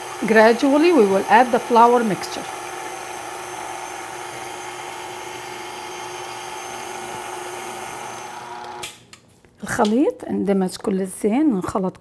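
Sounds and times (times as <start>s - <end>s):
stand mixer motor humming: 0.0s - 8.9s.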